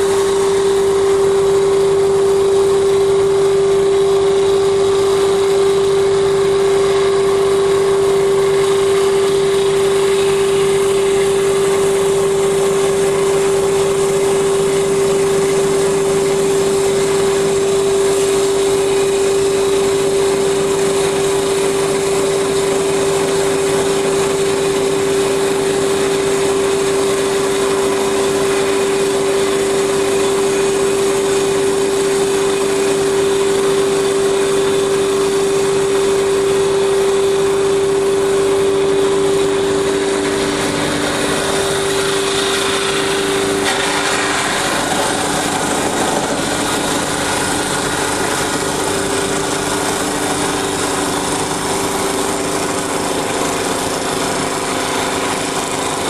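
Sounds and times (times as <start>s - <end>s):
wood lathe humming: 0.0s - 56.0s
cutter shaving wood hiss: 40.1s - 56.0s.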